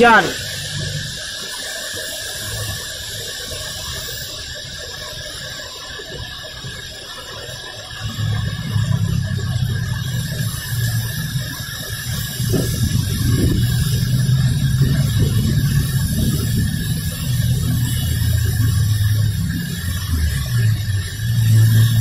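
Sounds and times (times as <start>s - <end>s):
car engines humming: 0.0s - 1.8s, 8.0s - 22.0s
rain hissing: 0.0s - 22.0s
tyres on wet asphalt: 8.0s - 22.0s.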